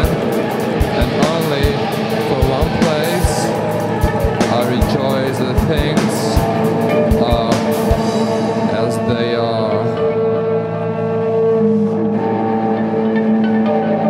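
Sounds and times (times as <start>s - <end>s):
drum hits: 0.0s - 8.8s
band music: 0.0s - 14.0s.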